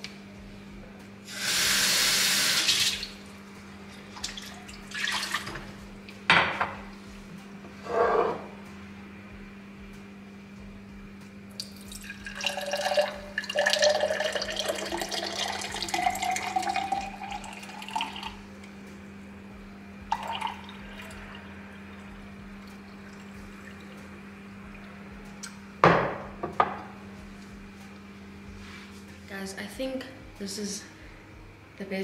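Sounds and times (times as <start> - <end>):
water pouring into a glass: 4.2 - 5.5, 11.6 - 18.4, 20.1 - 21.4.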